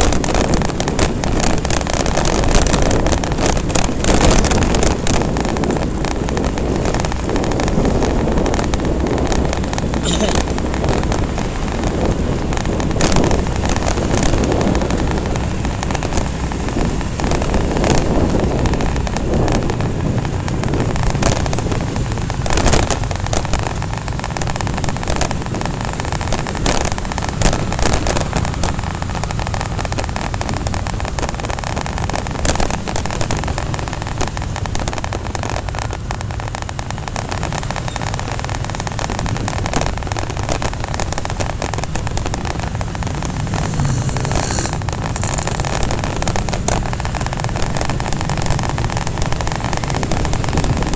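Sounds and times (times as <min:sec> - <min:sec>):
motorcycle engine: 0:00.0 - 0:50.9
passing traffic: 0:00.0 - 0:50.9
wind rushing over microphone: 0:00.0 - 0:50.9.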